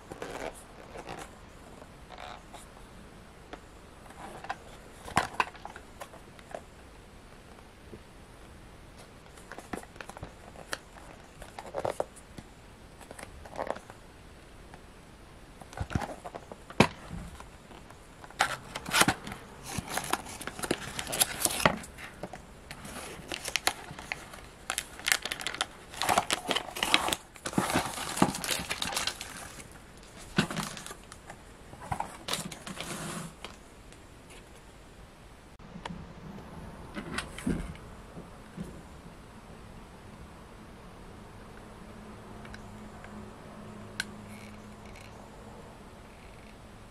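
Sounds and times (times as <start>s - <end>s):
plastic bag crinkling: 18.2s - 33.6s
cardboard box being handled: 18.3s - 31.0s.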